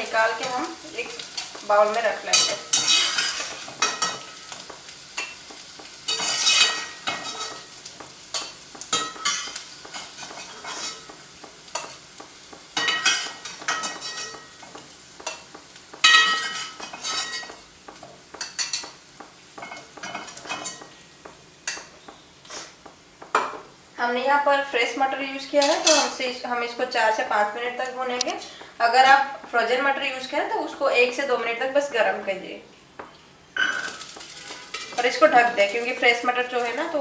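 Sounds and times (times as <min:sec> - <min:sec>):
oil sizzling: 0:00.0 - 0:37.0
metal spatula clinking on pots: 0:00.4 - 0:04.6, 0:06.1 - 0:12.0, 0:12.8 - 0:17.6, 0:19.6 - 0:20.9, 0:25.6 - 0:26.2, 0:33.6 - 0:36.0.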